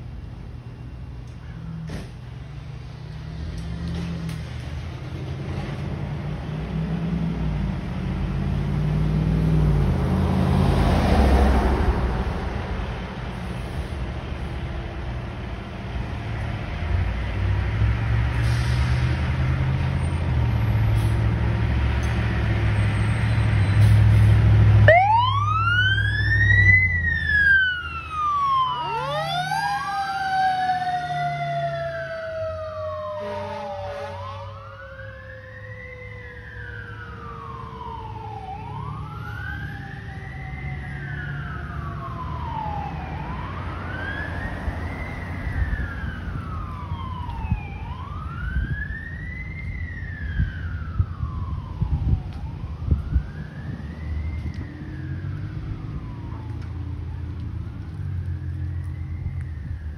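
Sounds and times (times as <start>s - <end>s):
diesel engine rumble: 0.0s - 59.9s
fire engine siren wailing: 2.8s - 59.9s
short horn blast: 33.2s - 34.5s.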